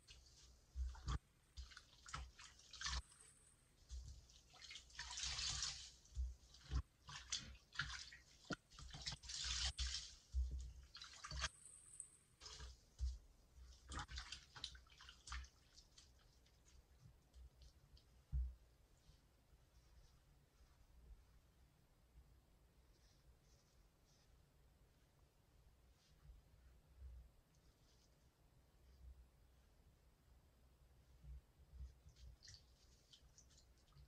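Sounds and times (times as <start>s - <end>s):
water rushing from wrung sponge: 0.0s - 11.6s, 12.4s - 16.8s
sponge squelching in water: 0.0s - 21.1s, 31.8s - 34.0s.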